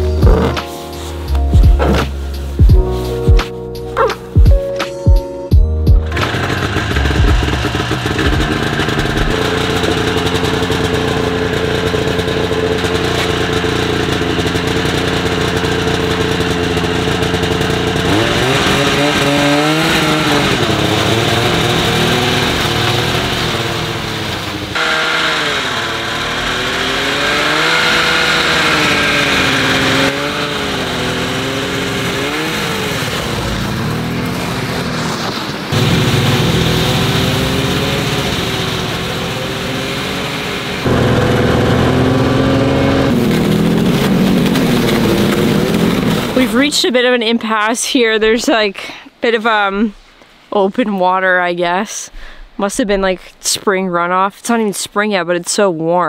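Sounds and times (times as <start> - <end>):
snowmobile engine revving: 0.0 - 3.2, 6.0 - 47.3.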